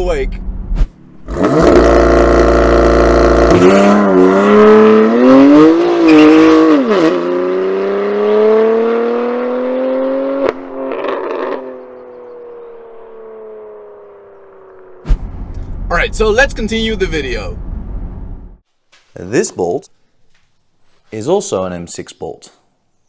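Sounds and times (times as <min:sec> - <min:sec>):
car engine revving and accelerating: 0:00.3 - 0:14.1.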